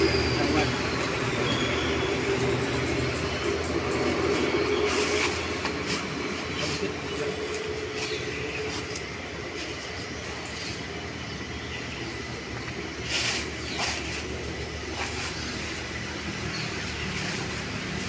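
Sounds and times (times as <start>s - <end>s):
footsteps in dry leaves: 4.3s - 10.9s.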